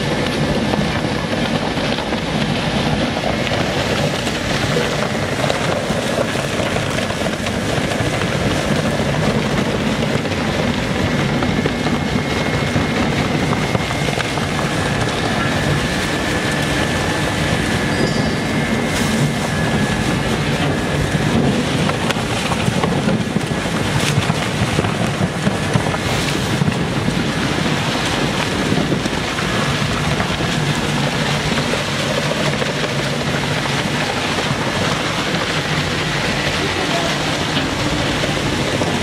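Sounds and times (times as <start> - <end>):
plastic shredder running: 0.0 - 39.0
sharp cracks: 18.9 - 39.0.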